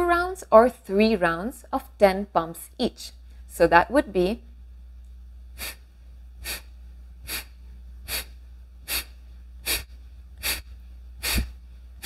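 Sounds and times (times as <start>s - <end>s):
forceful nasal exhalations: 5.6s - 5.8s, 6.4s - 11.6s.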